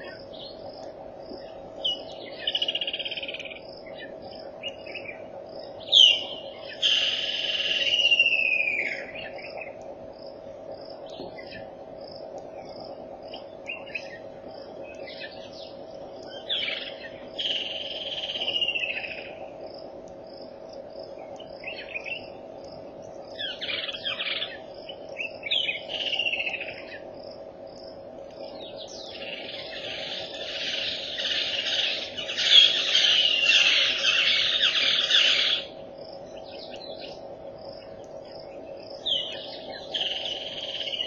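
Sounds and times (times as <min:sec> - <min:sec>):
constant low hum: 0:00.0 - 0:41.0
pulsing insect chirp: 0:00.0 - 0:41.0
birds calling in whistled phrases: 0:05.8 - 0:09.6, 0:28.8 - 0:35.8.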